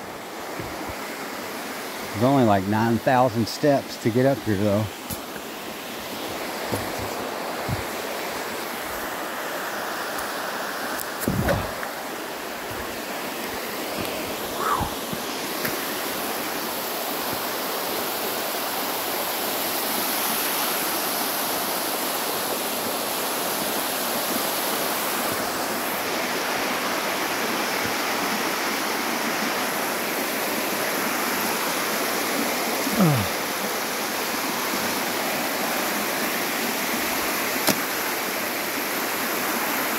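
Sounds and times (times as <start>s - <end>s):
water rushing down rock: 10.0s - 20.1s.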